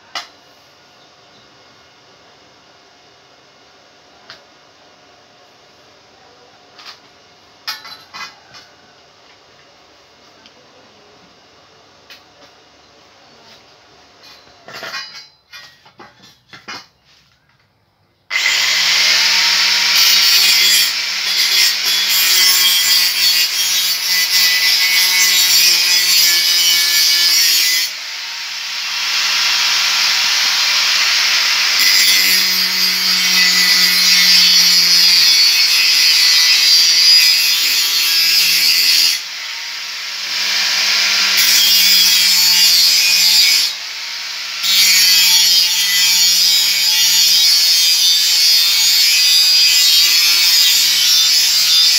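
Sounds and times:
angle grinder shrieking on steel: 0:18.3 - 0:51.9.

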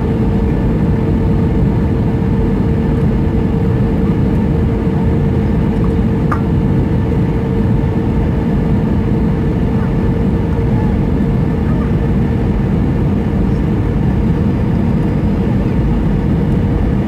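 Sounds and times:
airplane cabin engine drone: 0:00.0 - 0:17.0.

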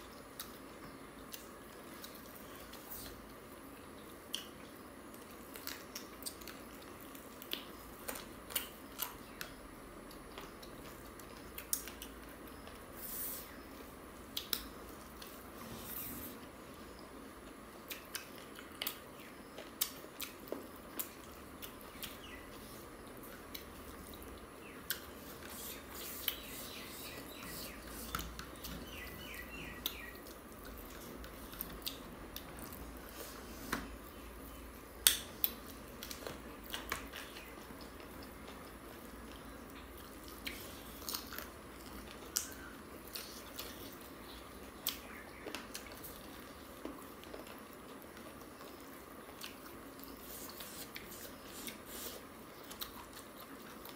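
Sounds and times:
people chewing and lip-smacking: 0:00.0 - 0:15.4, 0:16.8 - 0:53.9.

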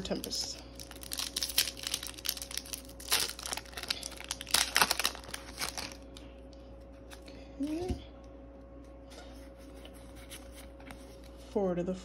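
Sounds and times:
foil wrapper tearing and crinkling: 0:00.0 - 0:06.2.

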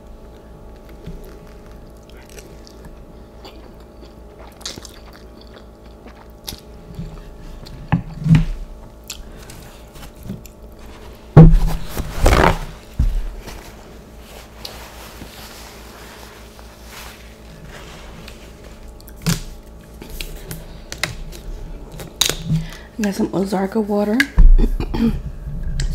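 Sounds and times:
person chewing noodles: 0:00.2 - 0:08.2, 0:08.9 - 0:10.8, 0:16.4 - 0:22.8.

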